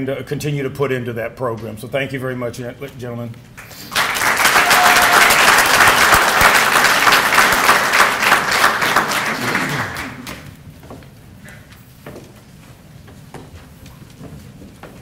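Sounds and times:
audience applauding: 0:03.6 - 0:10.6.

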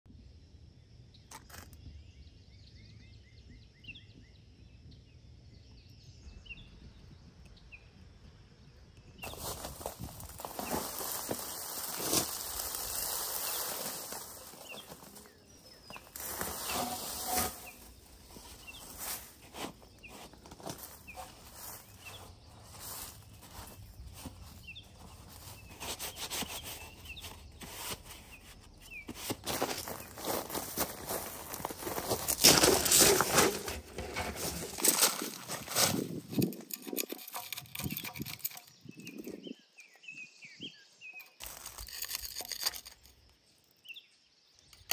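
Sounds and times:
small birds chirping: 0:00.4 - 0:44.9
rustling leaves and branches: 0:09.1 - 0:43.2
footsteps on gravel: 0:09.2 - 0:38.6, 0:41.4 - 0:43.0.

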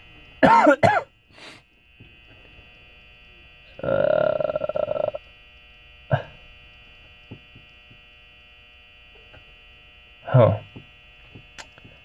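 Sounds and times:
electrical hum: 0:00.0 - 0:12.0
man grunting: 0:03.8 - 0:05.2, 0:06.1 - 0:06.4, 0:10.3 - 0:10.7.

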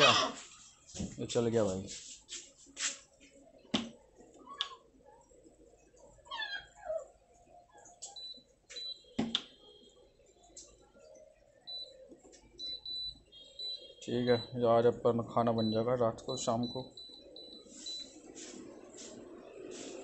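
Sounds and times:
cooktop control panel beeping: 0:08.1 - 0:10.0, 0:11.0 - 0:18.2.

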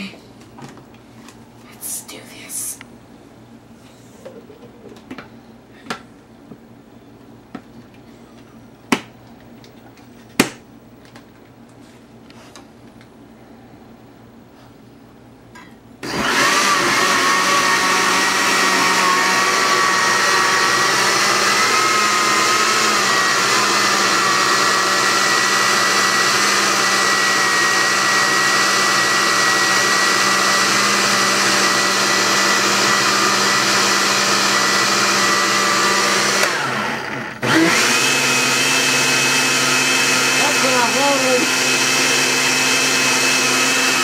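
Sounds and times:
blender motor whining: 0:16.0 - 0:44.0.

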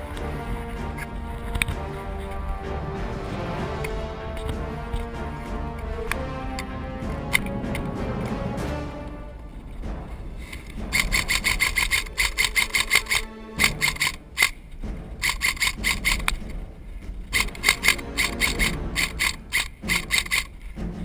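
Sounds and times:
airsoft rifle rapid bursts: 0:10.9 - 0:14.6, 0:15.2 - 0:16.3, 0:17.3 - 0:20.6.

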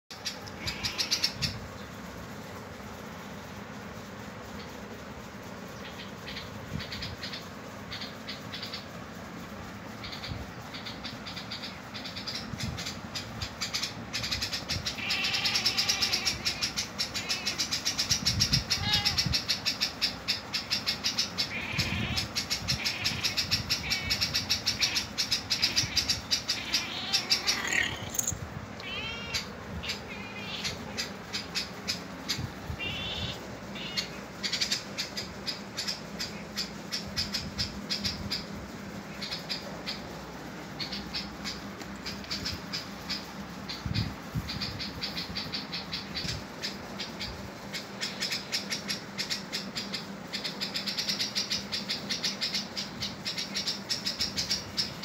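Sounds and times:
high-pitched bird chirping: 0:00.2 - 0:01.9, 0:09.9 - 0:38.6.

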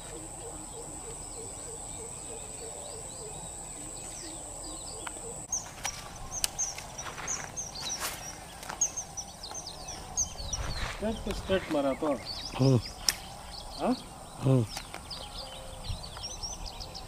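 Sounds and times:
low repeated calls: 0:00.0 - 0:17.0
small birds chirping: 0:00.0 - 0:17.0
steady high whine: 0:00.0 - 0:17.0
sharp clicks: 0:13.0 - 0:13.3.

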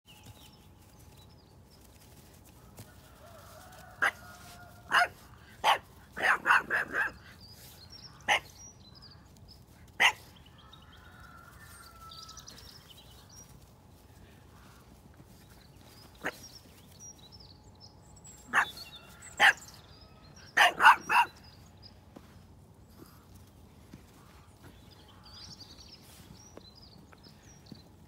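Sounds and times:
small dog barking: 0:04.0 - 0:07.2, 0:08.3 - 0:08.5, 0:10.0 - 0:10.3, 0:18.5 - 0:18.8, 0:19.4 - 0:19.7, 0:20.6 - 0:21.4.

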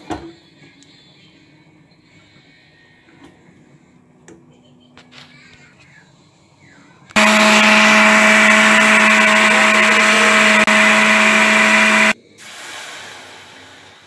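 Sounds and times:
blender motor running: 0:07.2 - 0:12.2.

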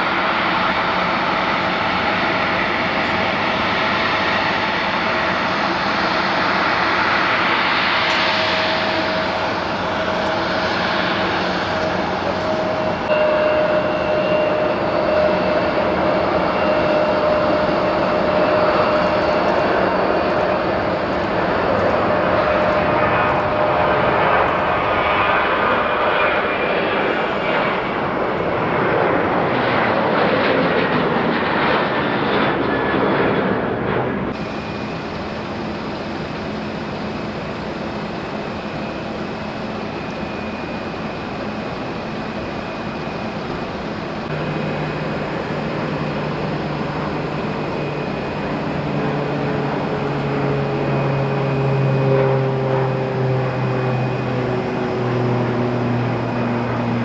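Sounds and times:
jet engines roaring at takeoff: 0:00.0 - 0:57.0
deep steady drone: 0:04.6 - 0:25.0, 0:34.3 - 0:57.0
airport hum with thin high tone: 0:08.2 - 0:20.5.

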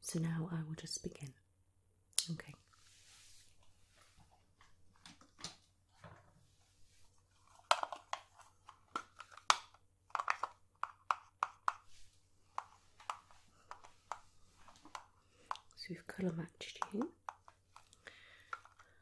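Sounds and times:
makeup containers clicking: 0:07.6 - 0:11.9, 0:12.5 - 0:19.0.

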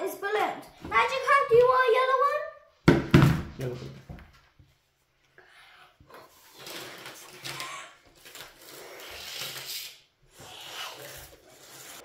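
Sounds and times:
child blowing up balloon: 0:05.4 - 0:12.0.

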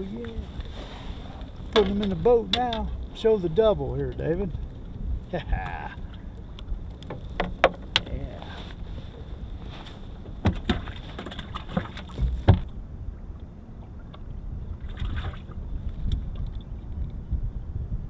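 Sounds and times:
low wind: 0:00.0 - 0:18.0
water noise: 0:00.0 - 0:18.0
fish and tackle knocking: 0:01.7 - 0:03.1, 0:07.0 - 0:08.1, 0:10.4 - 0:12.7.

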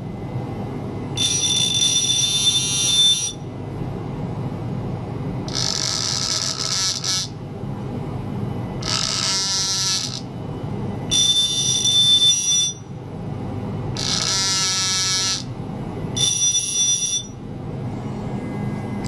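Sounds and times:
steady low hum: 0:00.0 - 0:19.0
buzzing beep-like bursts: 0:01.2 - 0:03.4, 0:05.5 - 0:07.3, 0:08.8 - 0:10.3, 0:11.1 - 0:12.9, 0:14.0 - 0:15.5, 0:16.2 - 0:17.4.

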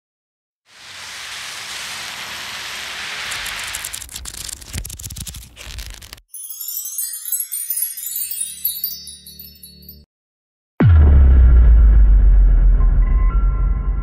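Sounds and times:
sparkling chime: 0:06.3 - 0:10.1
low booms: 0:10.8 - 0:14.0.

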